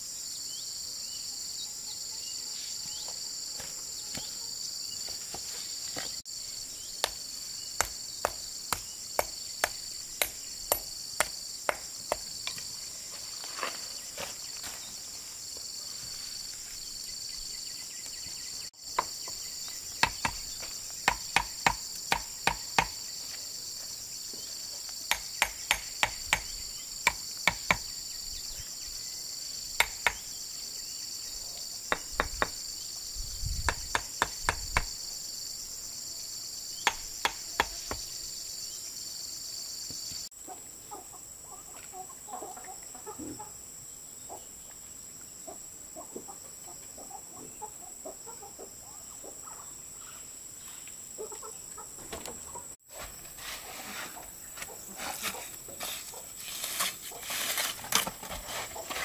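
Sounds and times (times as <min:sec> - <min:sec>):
insects chirping: 0:00.0 - 0:59.0.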